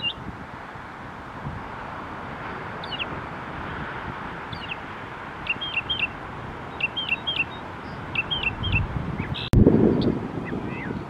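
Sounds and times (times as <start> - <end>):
mockingbird singing: 2.8 - 3.1, 4.5 - 4.8, 5.5 - 11.0.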